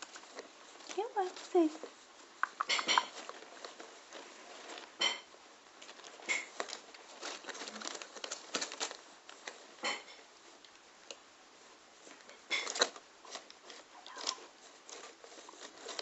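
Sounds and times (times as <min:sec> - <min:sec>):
rustling of cardboard and paper: 0:00.0 - 0:16.0
guinea pig chewing carrot: 0:00.1 - 0:05.2.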